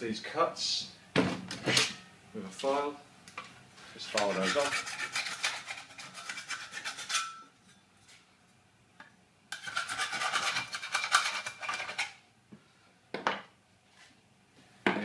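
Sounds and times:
hand file rasping on steel: 4.1 - 7.4, 9.6 - 12.1.

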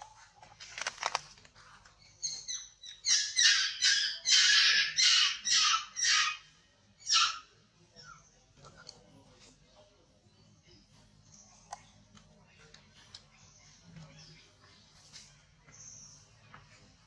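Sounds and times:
baby monkey screaming: 2.9 - 7.5.

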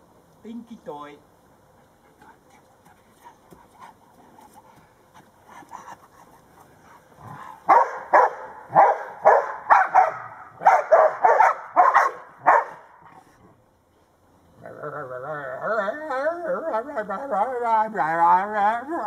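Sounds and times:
dog barking: 7.7 - 12.9.

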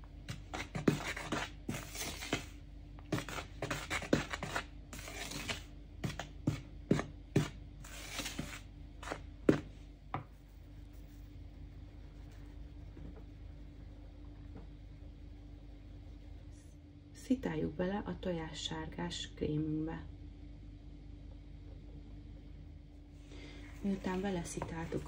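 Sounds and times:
spoon scraping dry powder: 0.3 - 12.6.

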